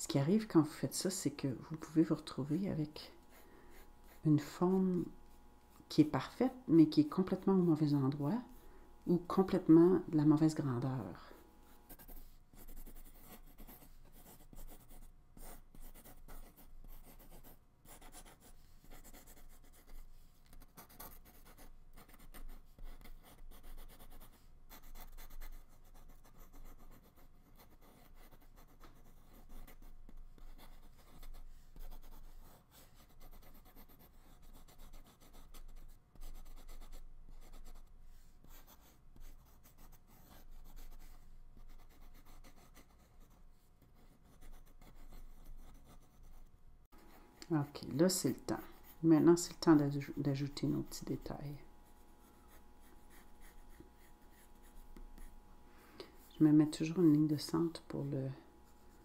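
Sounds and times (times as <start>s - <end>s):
pencil scratching on paper: 0.2s - 55.5s.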